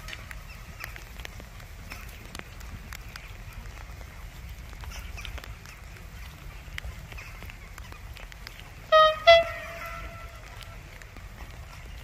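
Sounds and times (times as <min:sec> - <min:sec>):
train horn blasts: 0:08.9 - 0:10.4.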